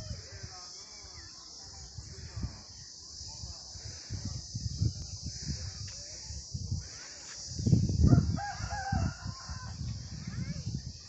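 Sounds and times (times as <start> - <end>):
rooster crowing: 8.1 - 9.8.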